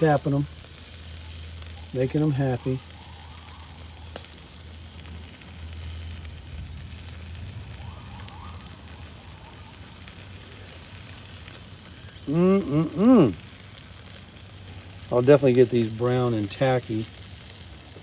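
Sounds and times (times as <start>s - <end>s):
chicken wings sizzling on grill: 0.0s - 18.0s
short wordless voice: 12.3s - 13.4s.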